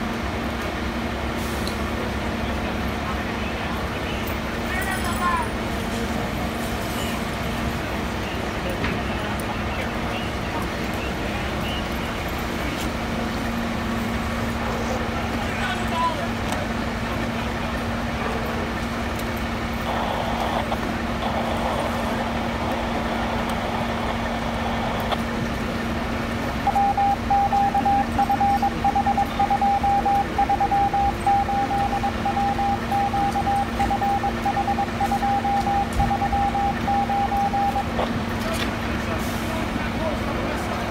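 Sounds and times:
fire engines idling hum: 0.0 - 40.9
street noise: 0.0 - 40.9
high electronic beeping: 26.6 - 37.9.

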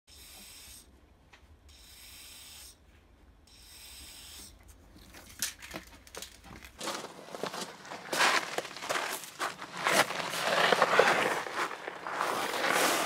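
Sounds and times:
spray paint can hissing: 0.1 - 0.9, 1.8 - 2.8, 3.5 - 4.6.

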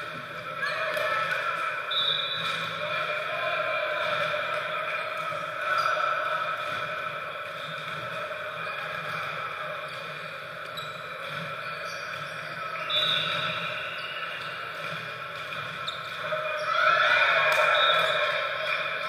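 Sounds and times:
sneakers squeaking on hardwood floor: 8.6 - 16.8.

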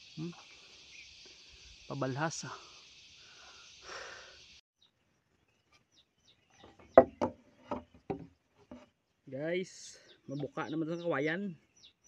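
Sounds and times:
wooden stick knocking bamboo: 7.0 - 8.9.

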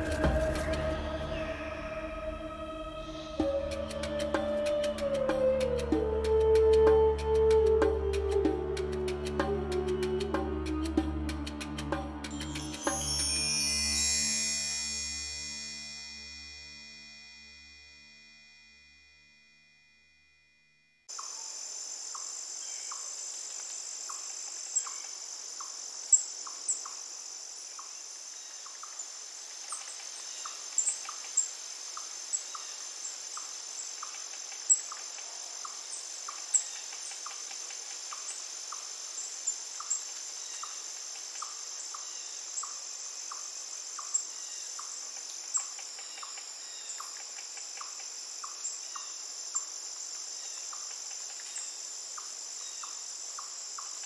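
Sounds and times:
crickets trilling: 12.3 - 18.3, 21.1 - 54.0.

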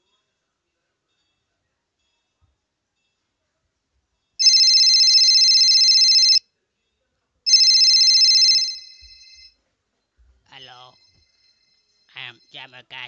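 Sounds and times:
telephone ringing: 4.4 - 6.4, 7.5 - 9.5.

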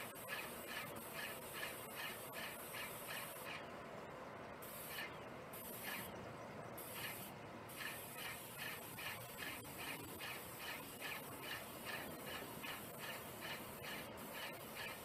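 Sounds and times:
paint sprayer hissing: 0.0 - 3.7, 4.6 - 6.2, 6.8 - 15.0.

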